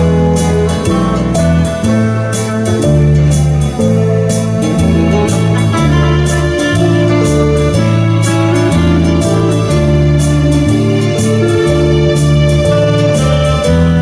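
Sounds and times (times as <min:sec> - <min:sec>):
bass guitar: 0:00.0 - 0:14.0
electric guitar tune: 0:00.0 - 0:14.0
electronic keyboard: 0:00.0 - 0:14.0.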